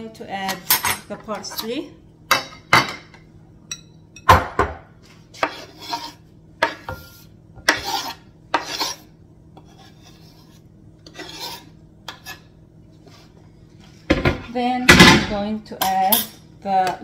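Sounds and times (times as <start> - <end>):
spoon scraping cutting board: 5.3 - 13.4.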